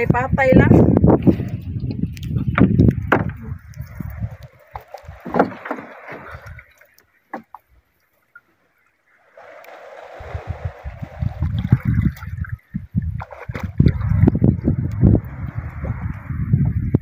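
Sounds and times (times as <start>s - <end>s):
low bumps: 0.0s - 7.7s, 9.8s - 17.0s
water sloshing against boat: 0.0s - 17.0s.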